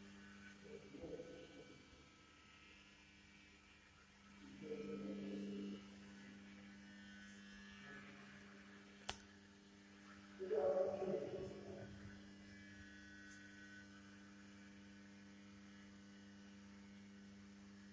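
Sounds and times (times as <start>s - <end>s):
electrical hum: 4.2s - 17.9s
sharp click: 9.0s - 9.3s.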